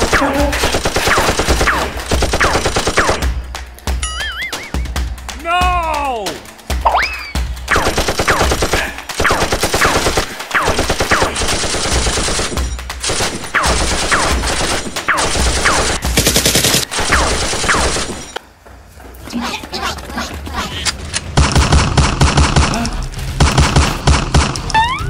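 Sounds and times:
automatic gunfire: 0.0 - 3.4, 7.7 - 18.3, 21.4 - 24.6.

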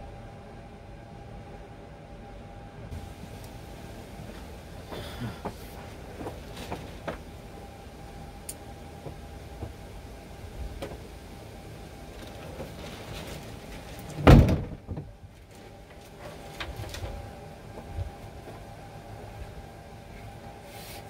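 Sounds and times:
mechanical hum: 0.0 - 21.0
loud thump: 14.2 - 15.0.

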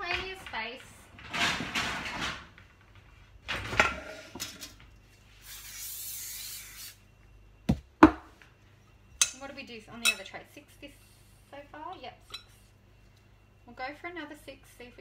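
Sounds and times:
aerosol spray hissing: 5.4 - 7.0
sharp knocks on bench: 7.7 - 8.3.

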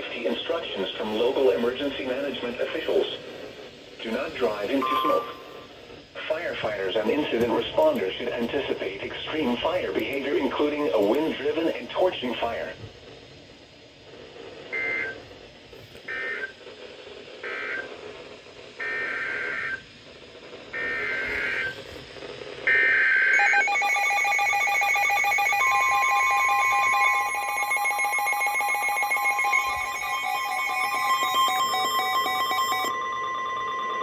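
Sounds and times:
steady warning tone: 0.0 - 12.8, 18.7 - 21.8, 22.6 - 34.0
raspy two-tone data bursts: 4.0 - 11.4
pulsing electronic alarm: 4.4 - 7.6, 16.1 - 16.6, 17.4 - 18.0, 18.8 - 19.8, 20.7 - 21.8, 22.6 - 34.0.

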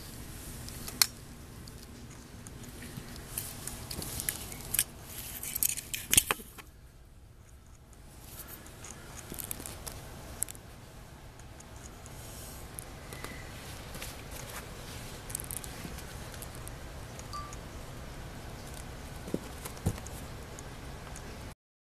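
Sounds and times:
rustling on phone microphone: 1.7 - 6.7, 7.4 - 10.7, 11.6 - 16.8.

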